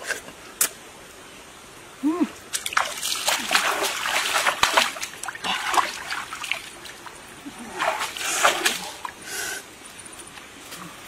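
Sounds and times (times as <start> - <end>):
hand splashing stream water: 2.5 - 9.2.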